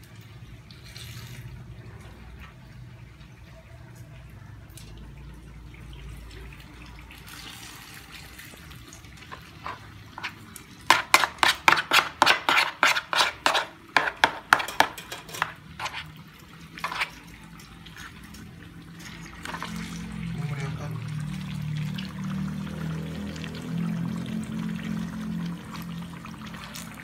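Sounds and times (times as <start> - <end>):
metal spoon knocking plastic bowl: 10.9 - 16.0.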